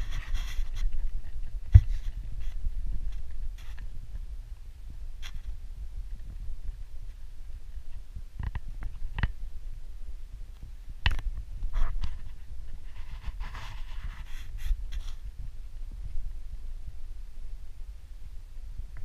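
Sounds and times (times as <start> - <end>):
skin rubbing rustle: 0.0 - 4.0, 11.6 - 15.3
low microphone rumble: 0.0 - 19.0.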